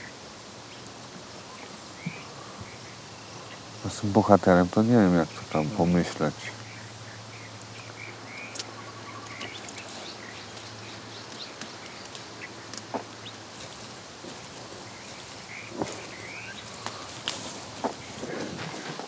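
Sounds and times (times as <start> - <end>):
small birds chirping: 0.0 - 18.6
leaves rustling: 0.0 - 19.0
outdoor hiss: 0.0 - 19.0
branches snapping: 7.6 - 19.0.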